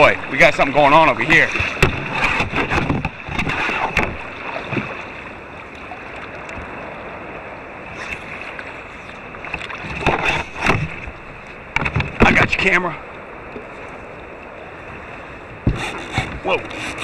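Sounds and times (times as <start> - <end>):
water splashing against kayak: 0.0 - 17.0
sharp knocks: 15.6 - 16.4.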